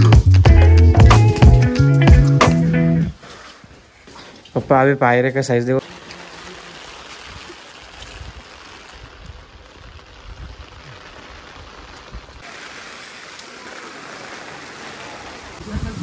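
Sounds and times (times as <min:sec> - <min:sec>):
steady rain: 0:05.8 - 0:16.0
water running on stone: 0:05.8 - 0:16.0.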